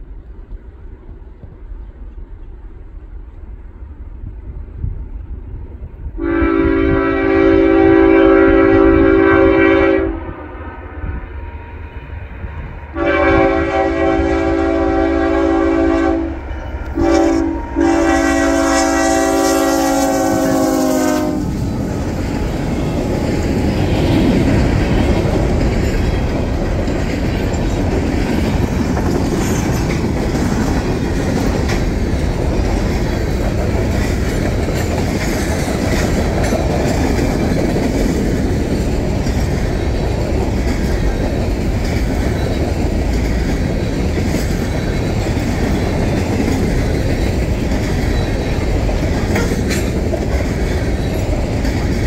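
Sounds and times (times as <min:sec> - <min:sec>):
train wheels rumbling on rails: 0:00.0 - 0:52.0
locomotive horn blasts: 0:06.2 - 0:11.8, 0:12.9 - 0:21.6.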